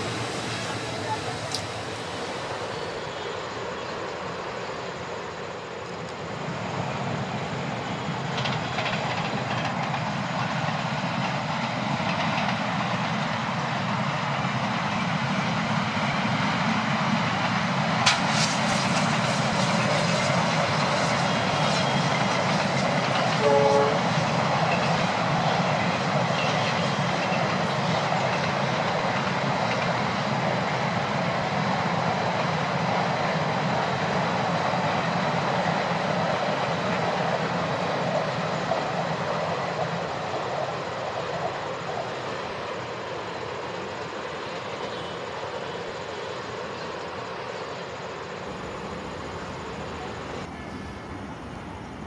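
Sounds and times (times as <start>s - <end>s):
train wheels rumbling: 0.0s - 52.0s
train horn blast: 23.3s - 24.2s.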